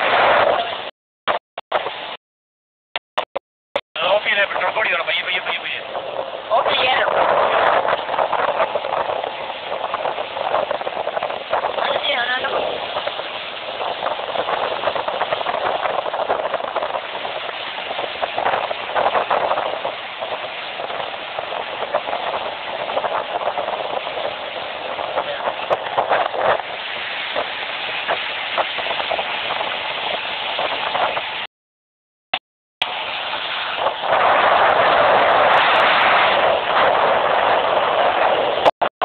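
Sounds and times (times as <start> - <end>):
wind rushing over microphone: 0.0 - 2.2, 4.0 - 31.5, 32.8 - 39.0
speed boat engine: 4.0 - 30.4.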